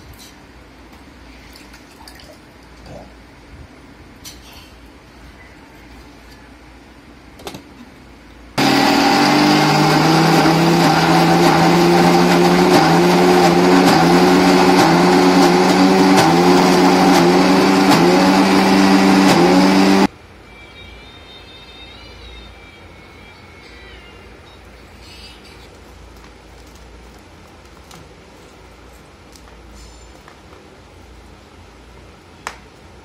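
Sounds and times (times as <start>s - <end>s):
mixer grinder running: 8.6s - 20.1s.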